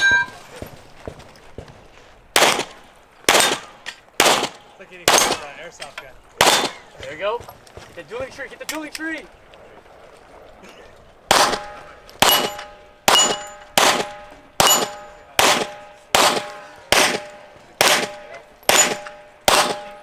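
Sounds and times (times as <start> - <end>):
steel target plate clanging: 0.0 - 0.4, 11.6 - 16.0
pistol shots: 2.3 - 5.6, 6.4 - 6.9, 11.3 - 20.0.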